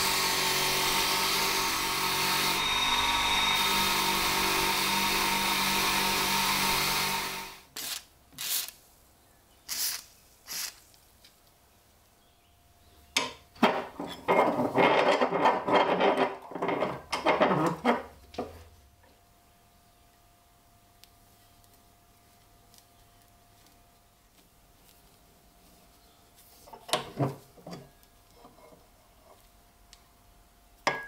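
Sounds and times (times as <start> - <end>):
bench polishing motor running: 0.0 - 7.6.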